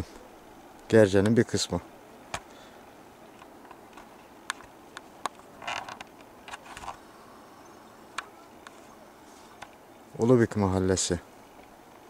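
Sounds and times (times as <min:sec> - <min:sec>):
rustling and scraping: 0:03.3 - 0:07.1, 0:08.2 - 0:09.8.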